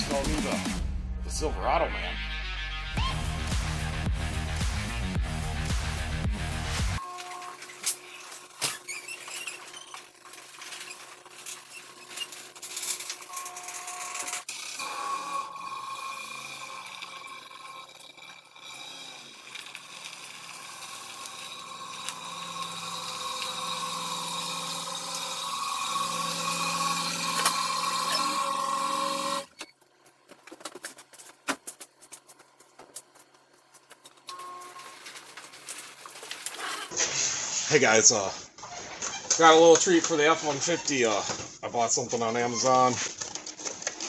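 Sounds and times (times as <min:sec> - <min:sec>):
garage door opener running: 0:07.0 - 0:29.7.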